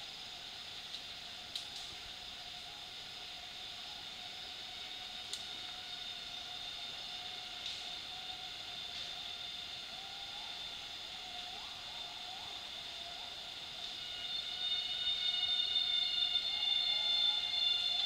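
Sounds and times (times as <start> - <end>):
insects whining: 0.0 - 18.0.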